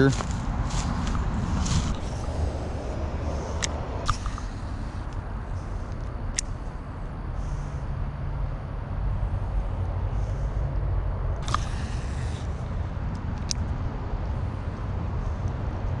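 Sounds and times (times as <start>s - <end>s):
low background rumble: 0.0s - 16.0s
fishing reel spool whirring: 11.4s - 12.6s.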